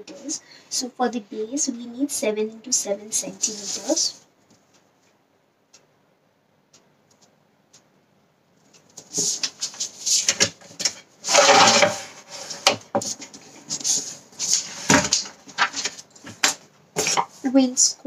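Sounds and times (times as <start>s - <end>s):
sliding scrape: 3.4s - 4.1s, 9.1s - 10.5s, 11.2s - 16.0s
paper sheet rustling: 3.4s - 4.2s, 9.0s - 17.5s
steel ruler put down: 11.3s - 12.2s.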